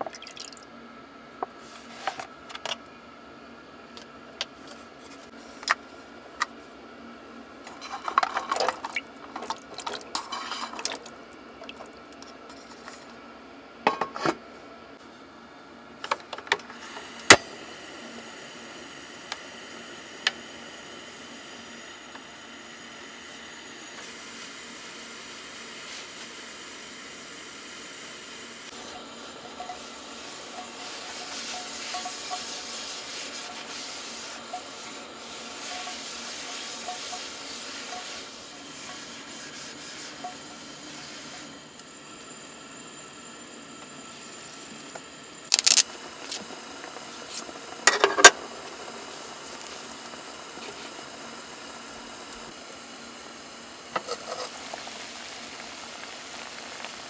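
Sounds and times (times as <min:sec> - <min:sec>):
gas stove hissing: 0:16.0 - 0:57.0.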